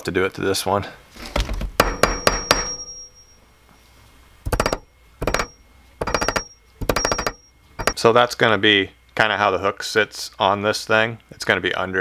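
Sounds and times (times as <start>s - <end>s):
hammer tapping on metal: 1.8s - 3.1s, 4.5s - 8.0s.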